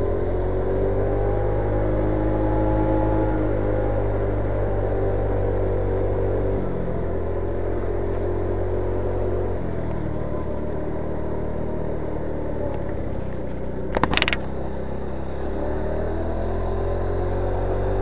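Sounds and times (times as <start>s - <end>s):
scooter engine running: 12.2s - 15.8s.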